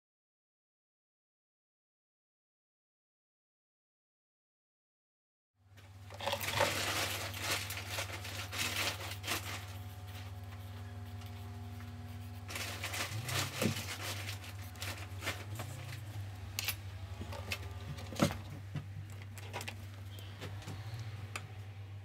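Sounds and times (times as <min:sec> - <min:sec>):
steady low hum: 0:05.6 - 0:22.0
pencil scratching on paper: 0:07.9 - 0:16.0.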